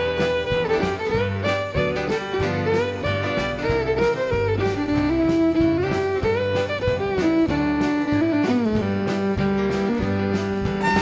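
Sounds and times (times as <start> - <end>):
fiddle melody: 0.0 - 11.0
rhythm guitar: 0.0 - 11.0
steady drum beat: 0.0 - 11.0
walking bass: 0.0 - 11.0.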